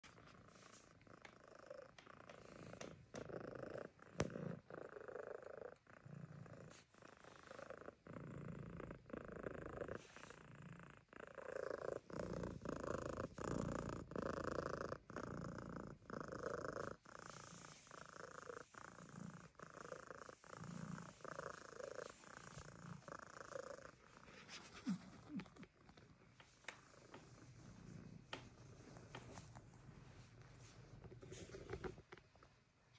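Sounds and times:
cat purring: 0:00.0 - 0:32.9.

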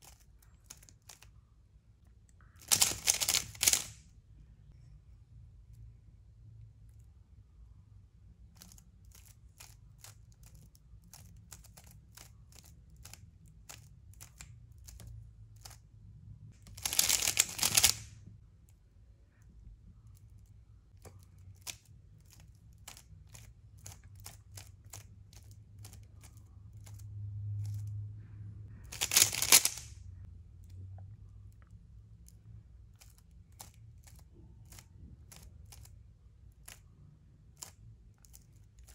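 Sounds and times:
puzzle cube clicking: 0:02.6 - 0:04.0, 0:16.7 - 0:18.1, 0:28.9 - 0:30.0.

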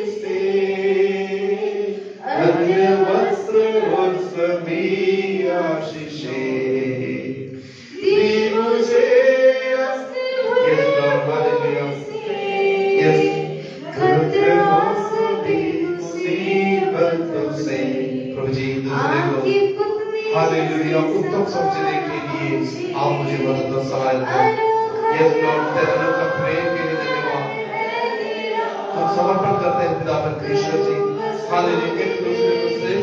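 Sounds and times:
man singing unaccompanied: 0:12.9 - 0:19.6, 0:20.2 - 0:27.6, 0:28.9 - 0:33.0.

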